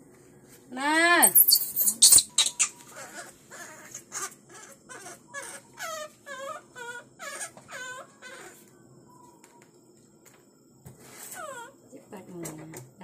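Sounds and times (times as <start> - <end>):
baby monkey crying: 1.2 - 8.6, 11.3 - 11.8
monkey shriek: 1.2 - 8.6.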